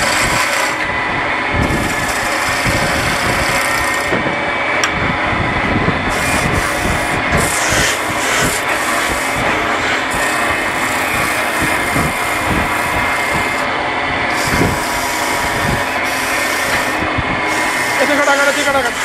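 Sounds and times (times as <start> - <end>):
wood lathe motor hum: 0.0 - 4.9, 6.1 - 19.0
sandpaper rubbing on wood: 14.4 - 19.0.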